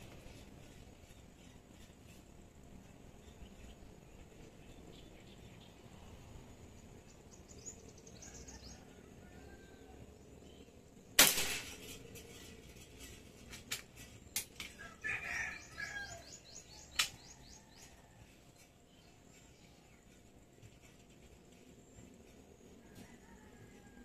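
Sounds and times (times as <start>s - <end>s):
small birds chirping: 0.0s - 8.9s, 12.2s - 23.4s
air rifle shot: 11.2s - 11.9s.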